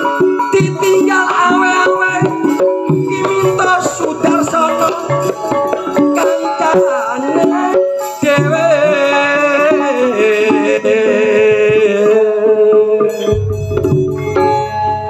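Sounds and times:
metallophones ringing: 0.0s - 15.0s
hand drum strokes: 13.2s - 15.0s.

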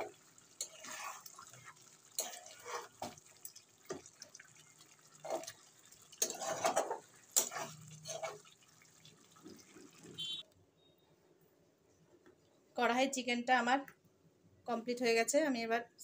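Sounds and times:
spatula scraping and knocking pan: 0.0s - 1.5s, 6.2s - 8.5s
thick gravy being stirred: 0.0s - 10.1s.

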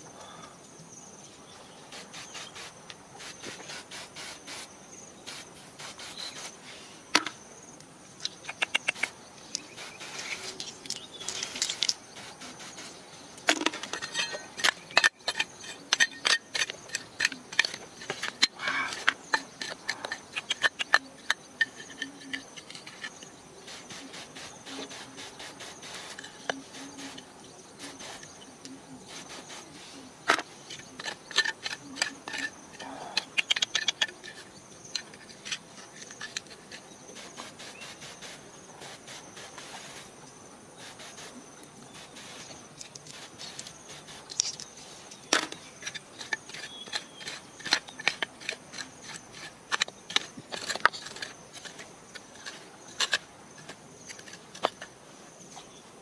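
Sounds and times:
high insect drone: 0.0s - 56.0s
small stones clattering: 10.4s - 12.0s, 42.8s - 55.0s.

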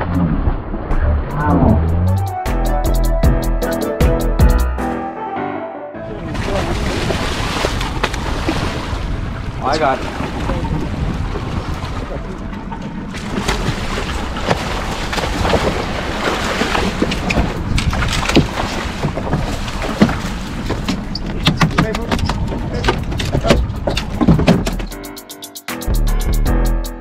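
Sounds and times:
wind on microphone: 6.1s - 24.9s
water sloshing around boat: 6.2s - 24.9s
sharp knocks and splashes: 6.4s - 24.9s.

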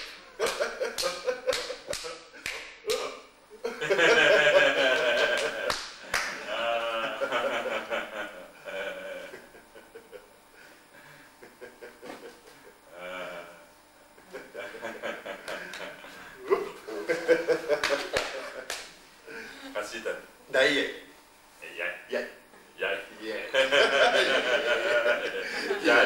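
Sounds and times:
men laughing and exclaiming: 3.7s - 5.7s, 6.4s - 10.2s, 23.4s - 26.0s.

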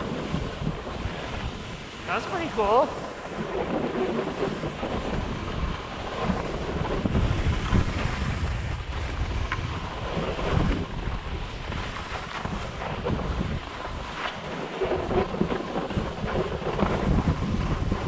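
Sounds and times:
wind rumble on microphone: 0.0s - 18.0s
skis hissing on snow: 1.2s - 3.2s.

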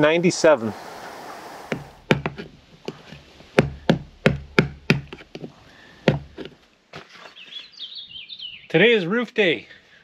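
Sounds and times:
hand tool knocking sealant: 1.7s - 6.6s.

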